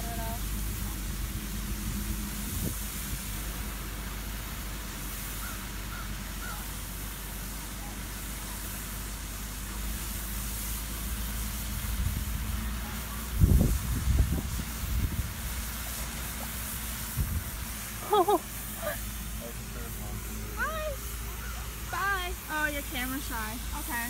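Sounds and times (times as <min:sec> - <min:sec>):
city traffic rumble: 0:00.0 - 0:24.0
fountain spray hissing: 0:00.0 - 0:24.0
wind buffeting microphone: 0:13.3 - 0:15.7, 0:17.1 - 0:17.7.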